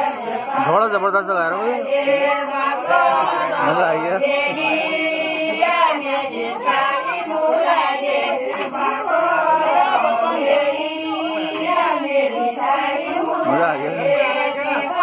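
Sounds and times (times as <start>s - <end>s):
women singing folk song: 0.0s - 0.8s, 1.8s - 15.0s.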